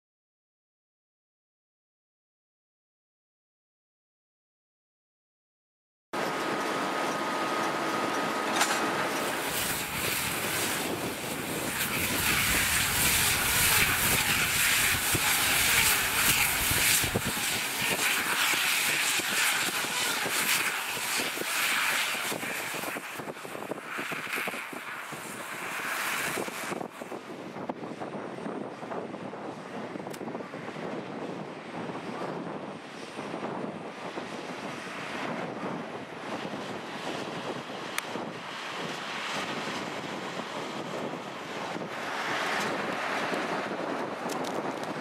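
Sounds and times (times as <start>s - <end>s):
tractor and baler running: 6.2s - 45.0s.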